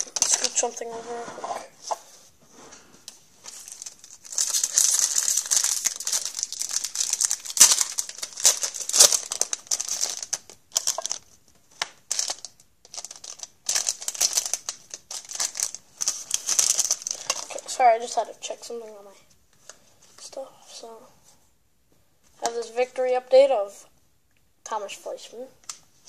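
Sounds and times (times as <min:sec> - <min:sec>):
plastic crackles: 0:00.0 - 0:00.8, 0:03.1 - 0:18.2
plastic crinkling: 0:00.0 - 0:00.8, 0:03.4 - 0:17.8.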